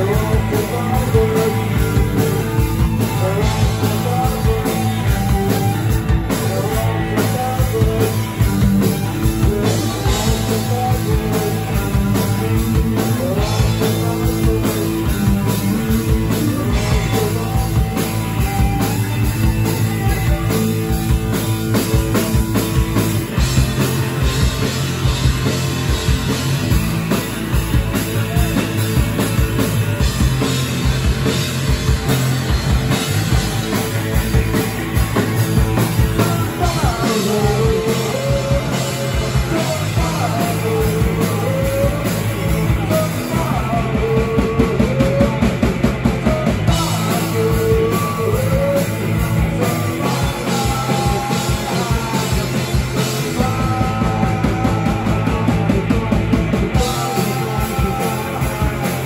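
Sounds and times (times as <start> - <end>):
punk rock band playing: 0.0 - 59.0.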